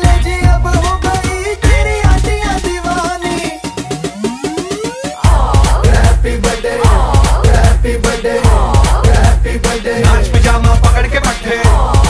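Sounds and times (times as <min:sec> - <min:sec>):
electronic party music: 0:00.0 - 0:12.0.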